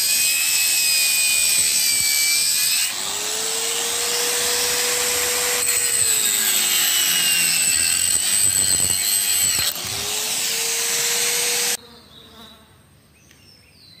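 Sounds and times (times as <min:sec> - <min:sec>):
angle grinder cutting steel: 0:00.0 - 0:11.8.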